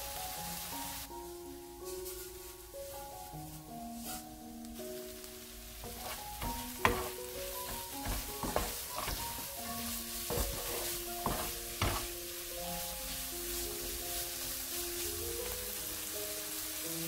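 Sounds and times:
food sizzling in a frying pan: 0:00.0 - 0:17.0
spatula scraping and knocking pan: 0:05.8 - 0:12.4.

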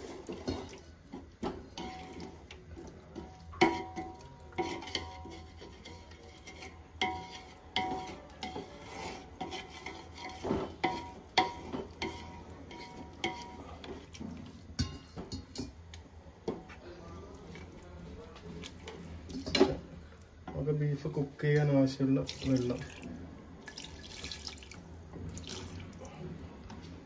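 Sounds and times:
spoon scraping metal pan: 0:03.2 - 0:14.2.

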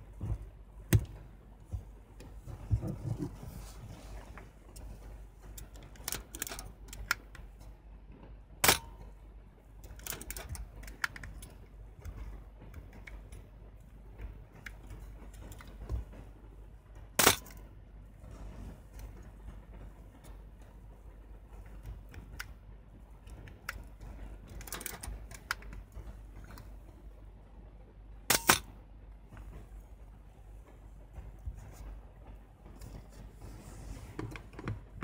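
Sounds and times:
camera ticks and rattles: 0:04.2 - 0:27.4, 0:34.0 - 0:35.0.

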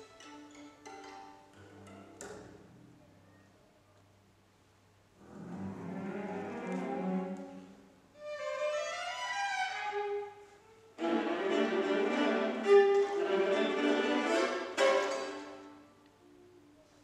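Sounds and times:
string orchestra playing: 0:05.2 - 0:16.0.

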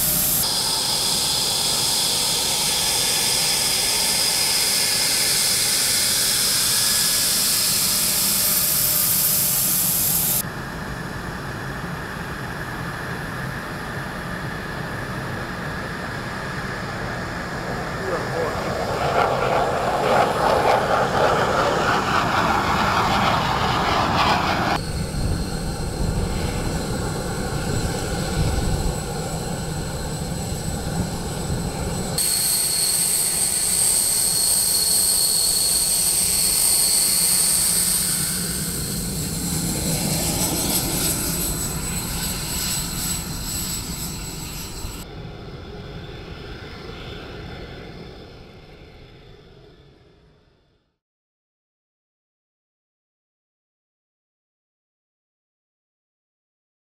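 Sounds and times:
distant jet noise: 0:00.0 - 0:49.0
fighter jet flying by: 0:00.0 - 0:50.0
high-pitched turbine whine: 0:00.0 - 0:50.9.

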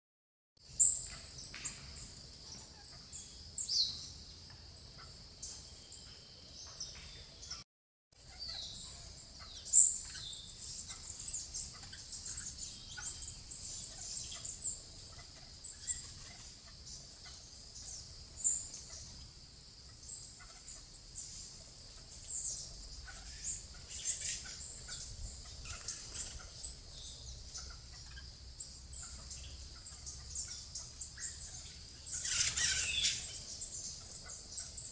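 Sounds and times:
parakeets chirping: 0:22.5 - 0:28.2, 0:28.9 - 0:34.9.

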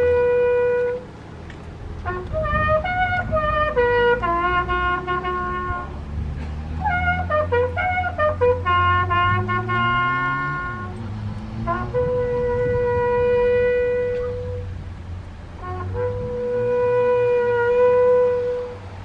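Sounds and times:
bugle playing military call: 0:00.0 - 0:01.1, 0:02.0 - 0:06.0, 0:06.8 - 0:14.8, 0:15.5 - 0:19.0.

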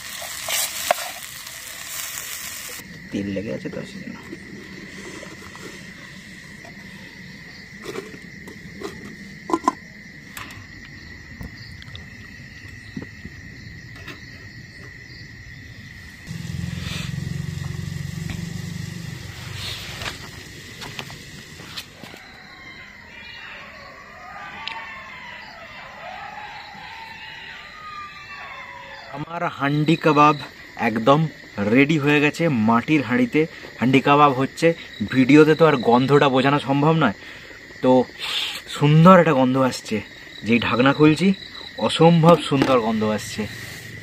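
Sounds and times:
high insect trill: 0:00.0 - 0:44.0
gas stove burner rushing: 0:16.1 - 0:22.0
animals howling: 0:22.0 - 0:29.4.

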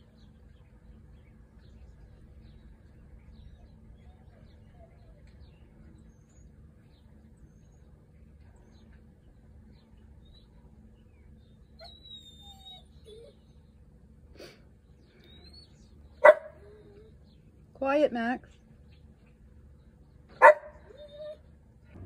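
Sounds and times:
birds chirping: 0:00.0 - 0:22.0
dog whining: 0:11.8 - 0:13.6, 0:15.2 - 0:17.2, 0:20.8 - 0:21.5.

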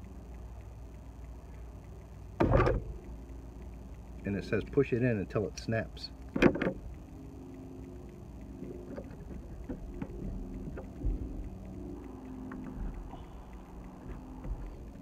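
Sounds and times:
faint plastic clicks: 0:00.0 - 0:15.0
motor droning: 0:06.1 - 0:15.0.

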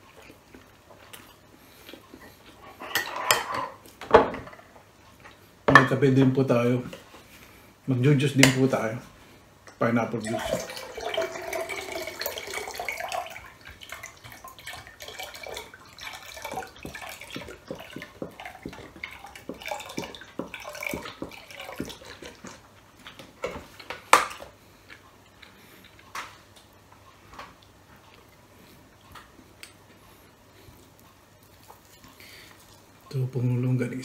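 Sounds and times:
juice pouring into a glass mug: 0:10.2 - 0:22.6
glugs and splashes: 0:10.2 - 0:23.6.

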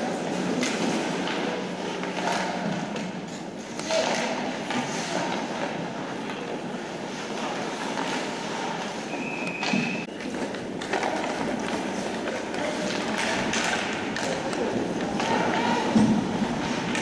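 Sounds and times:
hockey sticks and puck clacking: 0:00.0 - 0:17.0
skates scraping on ice: 0:04.7 - 0:09.1.

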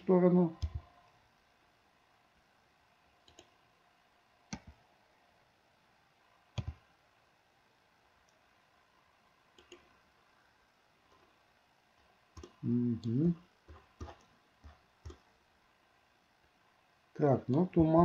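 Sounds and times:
computer mouse clicks: 0:00.6 - 0:00.9, 0:03.2 - 0:03.6, 0:04.5 - 0:04.8, 0:06.5 - 0:06.8, 0:09.5 - 0:10.0, 0:12.3 - 0:15.3.

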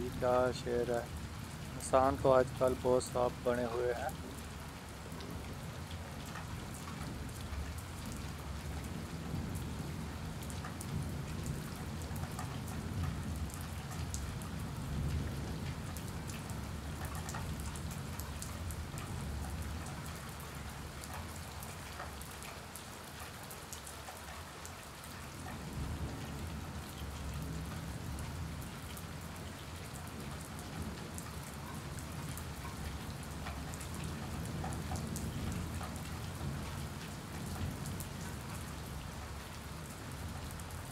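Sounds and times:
rain on concrete floor: 0:00.0 - 0:40.9.

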